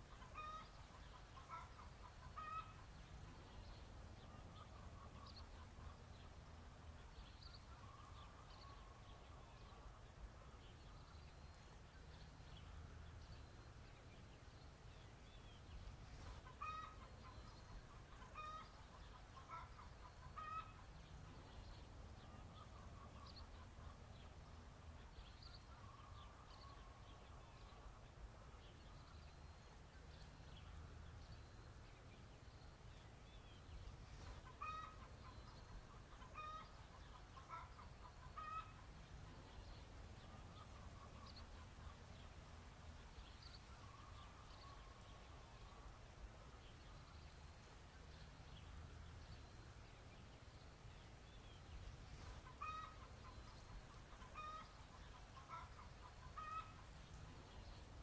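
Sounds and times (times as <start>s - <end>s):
chicken clucking: 34.4s - 35.4s, 52.4s - 53.4s, 54.1s - 56.8s.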